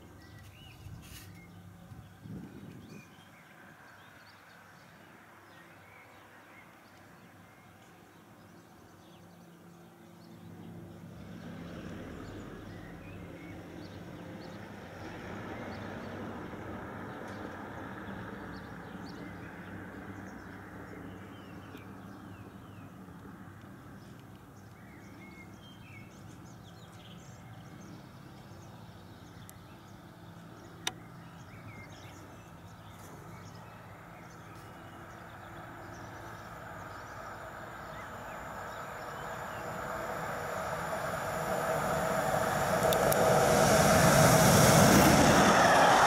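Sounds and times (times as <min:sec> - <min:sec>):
small birds chirping: 0:00.0 - 0:16.2, 0:17.1 - 0:44.2
electric train on rails: 0:12.0 - 0:22.0, 0:33.4 - 0:46.0.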